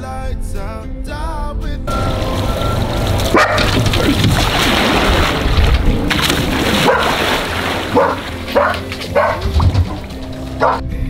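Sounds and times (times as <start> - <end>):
splashing water: 1.9 - 10.8
dog yelping and barking: 3.3 - 3.8, 6.8 - 7.2, 7.9 - 9.8, 10.6 - 10.8.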